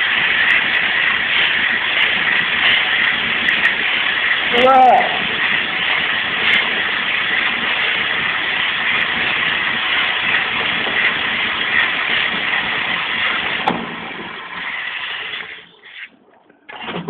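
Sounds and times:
sandpaper hissing on wood: 0.0 - 16.1
wood lathe running: 0.0 - 17.0.

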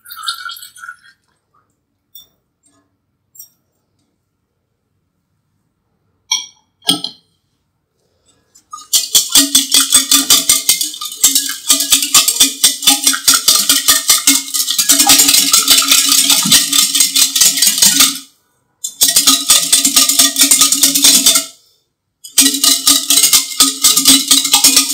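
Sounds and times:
whisk beating batter in bowl: 8.8 - 18.2, 18.9 - 21.5, 22.3 - 24.9.

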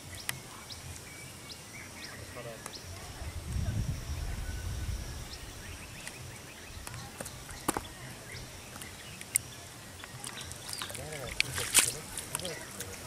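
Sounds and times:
sharp wet clicks: 8.8 - 13.0
squelching in wet mud: 10.1 - 13.0.

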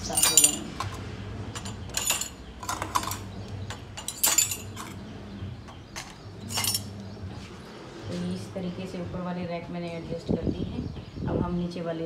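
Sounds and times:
spoons clinking: 0.0 - 1.0, 1.6 - 5.0, 6.0 - 6.9.

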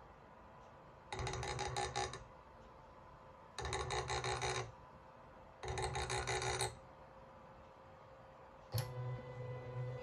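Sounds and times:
faint electrical hum: 0.0 - 10.0
stepper motor buzzing whine: 8.8 - 10.0.

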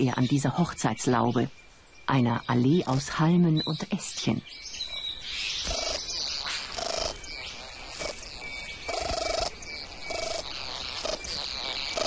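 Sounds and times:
bird buzzing churring calls: 5.5 - 12.0.

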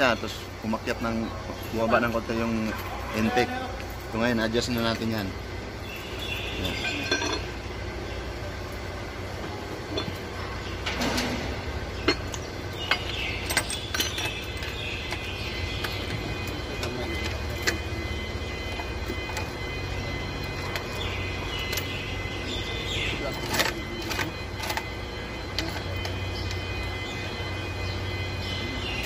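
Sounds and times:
low background hum: 0.0 - 29.0
hand tools clicking on metal: 12.0 - 17.9.

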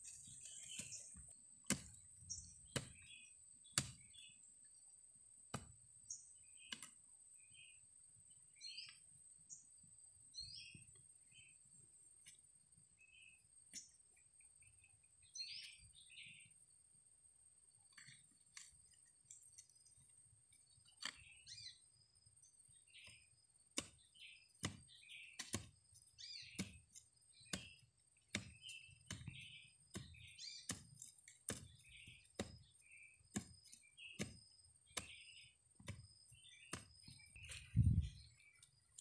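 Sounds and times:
small birds chirping: 0.0 - 5.0, 6.0 - 16.8, 17.8 - 39.0
digging tool chopping soil: 0.2 - 4.3, 5.5 - 5.8, 23.0 - 38.0.

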